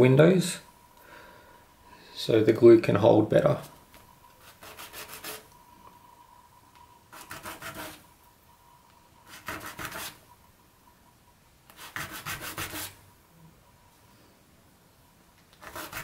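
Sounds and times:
plastic rubbed on sandpaper: 4.4s - 5.4s, 9.3s - 10.2s, 15.6s - 16.0s.

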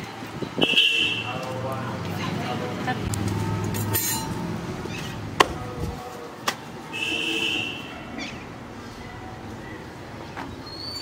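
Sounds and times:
metal utensils clinking: 3.3s - 4.6s.

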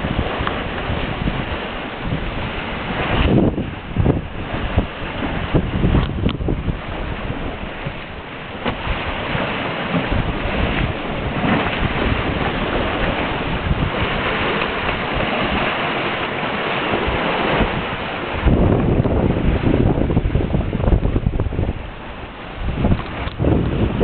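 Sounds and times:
water rushing along hull: 0.0s - 24.0s
wind buffeting microphone: 0.0s - 24.0s.

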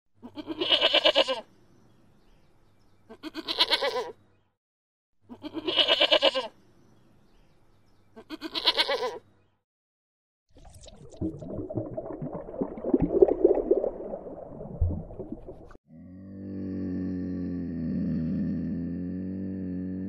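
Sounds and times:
goat bleating: 0.2s - 1.5s, 3.1s - 4.2s, 5.3s - 6.6s, 8.2s - 9.2s.

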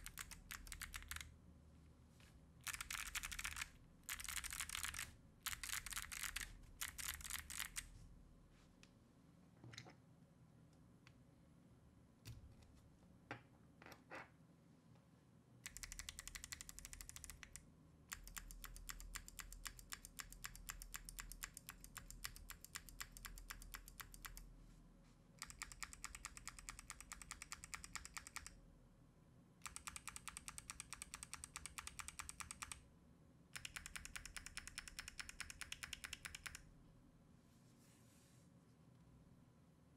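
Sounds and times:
mechanical keyboard clicking: 0.0s - 1.3s, 2.6s - 7.9s, 15.6s - 24.4s, 25.4s - 28.5s, 29.6s - 32.8s, 33.6s - 36.6s.

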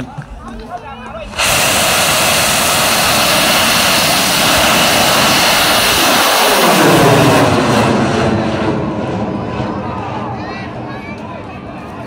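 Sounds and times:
rocket motor roaring: 1.2s - 10.4s.

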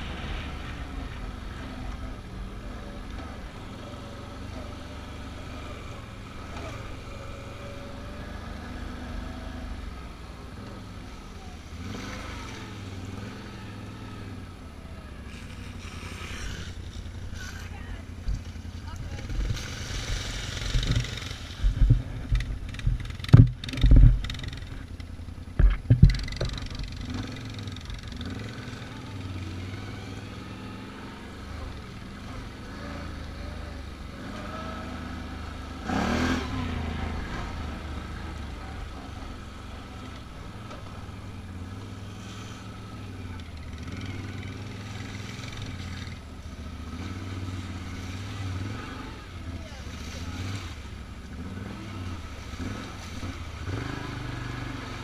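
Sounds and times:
atv engine running: 0.0s - 55.0s
sharp knocks and clatter: 20.5s - 27.3s.

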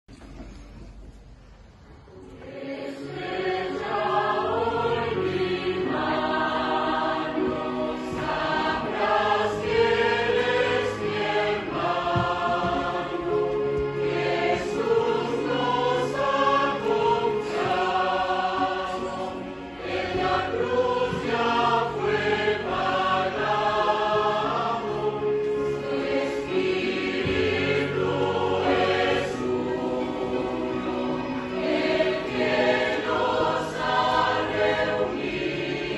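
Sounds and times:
mixed choir singing a hymn: 2.2s - 35.9s.

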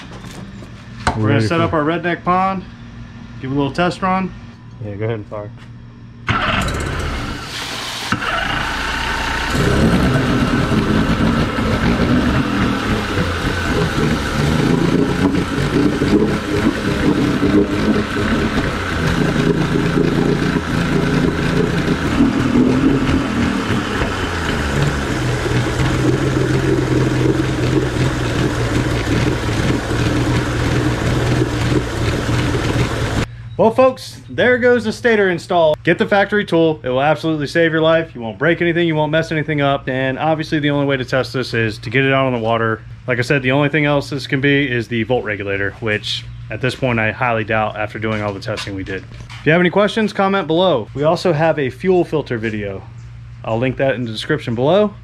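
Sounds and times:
outboard motor running: 6.3s - 33.3s.

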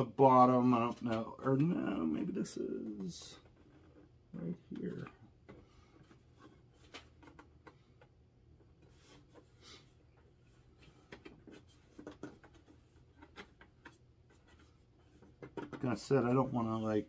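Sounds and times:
hands handling plastic toy: 2.8s - 9.6s, 10.2s - 16.6s.

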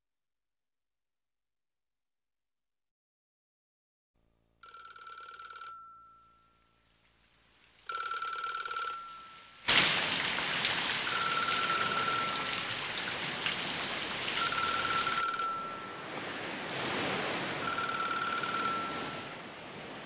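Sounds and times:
telephone bell ringing: 4.6s - 6.8s, 7.9s - 9.7s, 11.1s - 12.7s, 14.4s - 16.3s, 17.6s - 19.4s
heavy rain: 9.1s - 20.0s.

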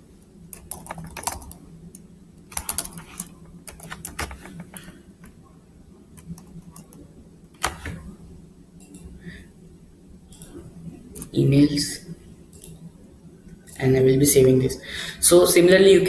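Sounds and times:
computer keyboard typing: 0.5s - 5.3s, 6.2s - 7.0s.

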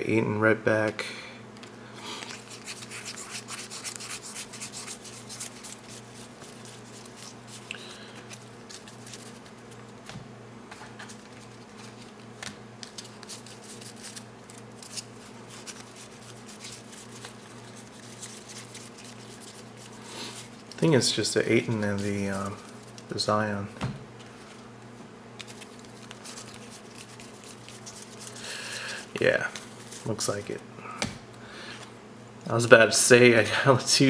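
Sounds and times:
cards flipped through by hand: 2.1s - 20.9s, 25.4s - 30.1s.

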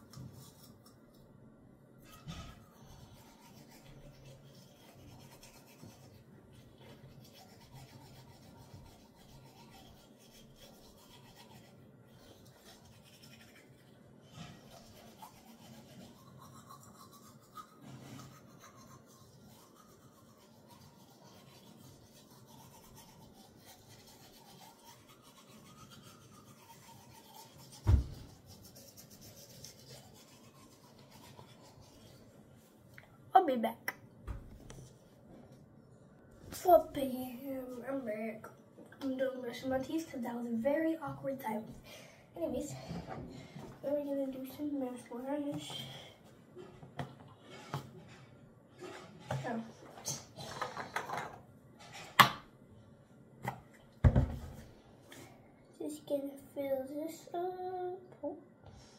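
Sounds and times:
toothbrush scrubbing teeth: 0.0s - 1.2s, 2.1s - 32.4s, 43.8s - 46.0s, 48.8s - 51.1s.

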